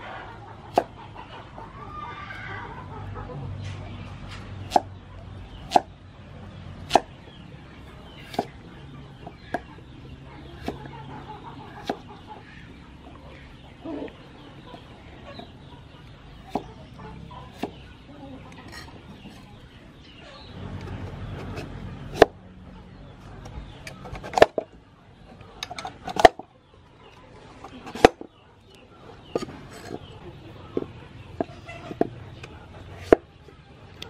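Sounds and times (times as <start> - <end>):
cleaver chopping on wooden board: 4.7 - 4.9, 5.7 - 5.9, 6.8 - 7.1.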